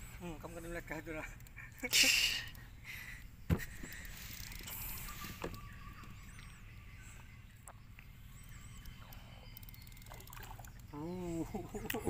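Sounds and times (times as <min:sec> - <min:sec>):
bird chirp: 0:02.4 - 0:12.0
fishing reel clicks: 0:04.0 - 0:05.0, 0:08.5 - 0:10.9
light water splashing: 0:10.1 - 0:11.0.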